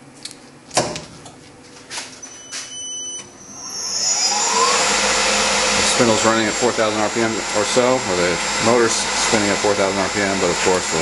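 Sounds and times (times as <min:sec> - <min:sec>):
motor high whine: 0:02.2 - 0:11.0.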